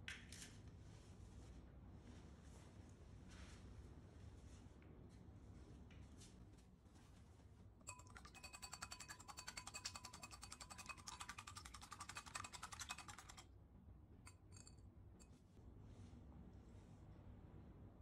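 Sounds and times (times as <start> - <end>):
whisk clicking against glass bowl: 7.8 - 13.5.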